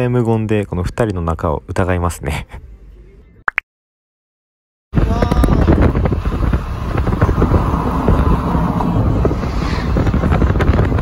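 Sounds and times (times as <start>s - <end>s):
wind and road noise in car: 5.0s - 11.0s.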